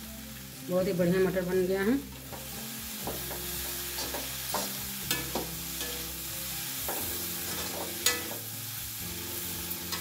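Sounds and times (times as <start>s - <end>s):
light sizzle: 0.0s - 10.0s
metal spatula scraping a pan: 3.2s - 8.5s.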